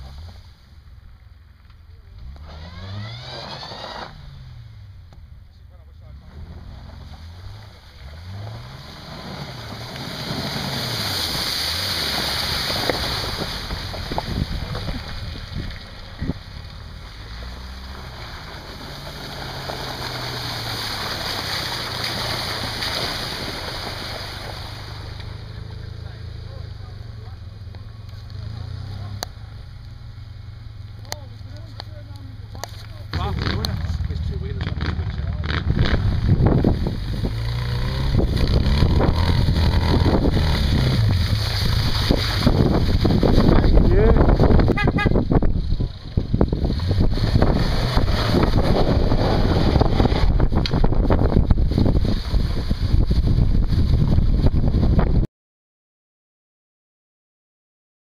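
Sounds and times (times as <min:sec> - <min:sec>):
off-road buggy engine running: 0:00.0 - 0:55.3
tyres hissing through wet snow: 0:06.8 - 0:16.0, 0:16.7 - 0:25.6, 0:37.0 - 0:43.7.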